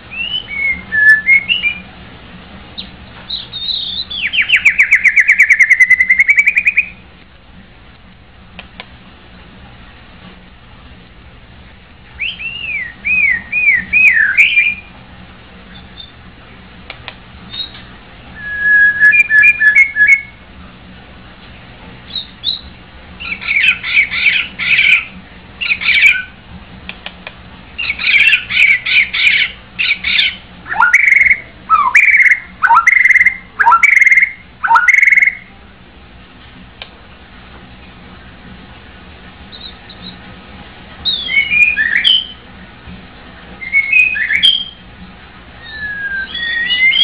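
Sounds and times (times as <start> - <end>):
bird singing whistled phrases: 0.1 - 1.9, 2.8 - 7.0, 12.2 - 14.9, 15.7 - 16.2, 17.5 - 17.8, 18.4 - 20.4, 22.1 - 26.3, 27.8 - 35.5, 39.5 - 40.2, 41.0 - 42.4, 43.6 - 44.8, 45.6 - 47.0.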